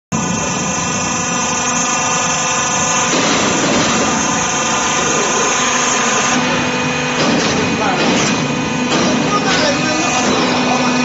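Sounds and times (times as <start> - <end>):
machine running with whining tones: 0.1 - 11.0.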